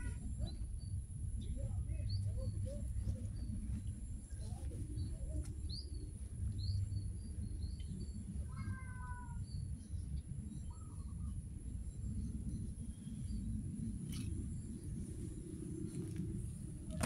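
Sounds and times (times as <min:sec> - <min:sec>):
small birds chirping: 0:00.0 - 0:17.0
steady low rumble: 0:00.0 - 0:17.0
cat meowing: 0:08.5 - 0:09.4.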